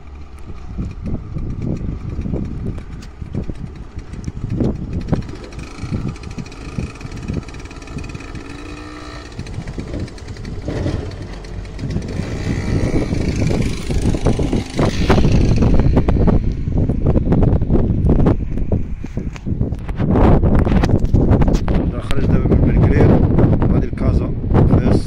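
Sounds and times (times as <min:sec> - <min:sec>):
small motorcycle engine running: 0:00.0 - 0:18.8.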